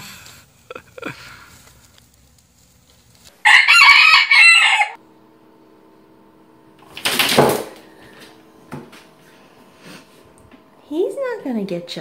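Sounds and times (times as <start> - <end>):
rooster crowing: 3.4 - 5.0.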